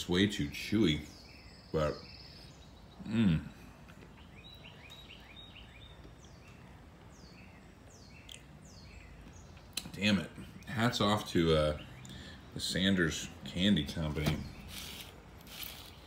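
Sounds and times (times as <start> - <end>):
low steady hiss: 0.0 - 16.0
small birds chirping: 0.0 - 16.0
man's short vocal sound: 3.0 - 3.6.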